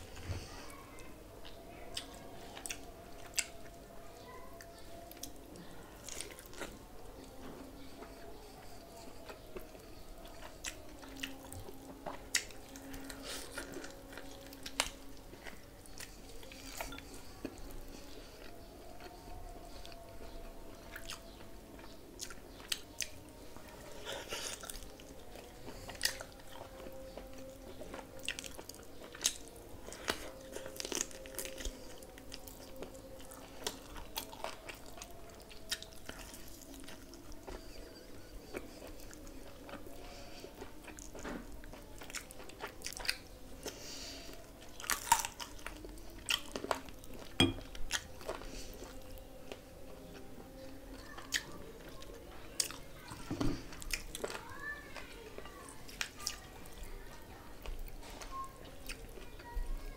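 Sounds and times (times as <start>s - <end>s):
person biting and chewing: 44.8s - 45.7s.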